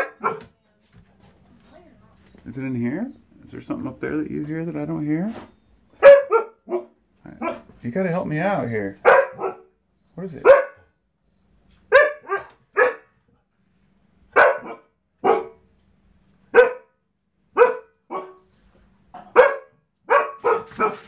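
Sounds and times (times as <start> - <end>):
dog barking: 0.0 - 0.6, 6.0 - 7.7, 9.0 - 9.8, 10.4 - 10.9, 11.9 - 13.2, 14.3 - 15.7, 16.5 - 18.5, 19.2 - 21.0.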